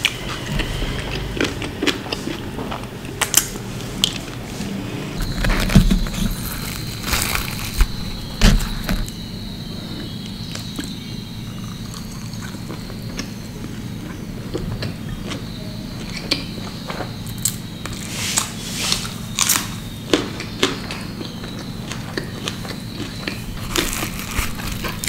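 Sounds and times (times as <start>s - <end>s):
fingers tearing bread: 5.2s - 9.1s, 22.4s - 25.0s
mouth chewing: 20.1s - 25.0s.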